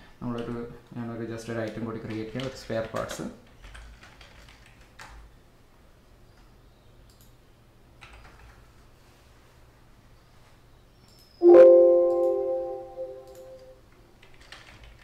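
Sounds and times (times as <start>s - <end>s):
computer alert chime: 11.4s - 13.7s
keyboard and mouse clicks: 13.0s - 15.0s.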